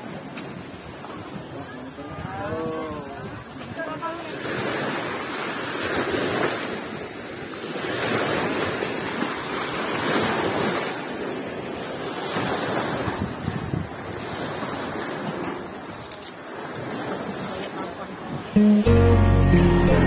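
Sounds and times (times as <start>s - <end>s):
waves washing onto beach: 0.0s - 19.8s
wind on microphone: 12.4s - 16.1s.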